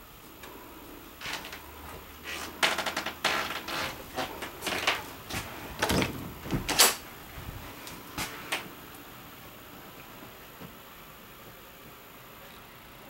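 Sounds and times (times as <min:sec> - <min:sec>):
footsteps on trailer floor: 0:01.2 - 0:08.5
knocks and rattles of fittings: 0:02.4 - 0:07.0.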